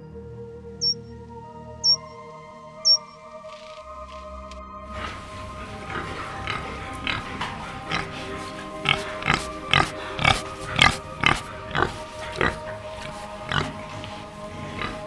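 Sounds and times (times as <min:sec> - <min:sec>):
pig grunting: 0:04.9 - 0:15.0.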